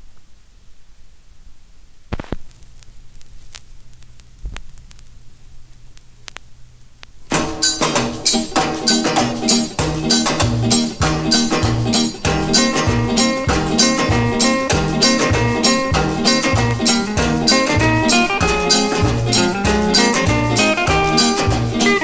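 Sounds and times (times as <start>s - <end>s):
low steady hum: 0.0s - 7.3s
vinyl surface crackle: 0.0s - 22.0s
stylus dropping onto record: 2.1s - 2.8s
music with drums: 7.3s - 22.0s.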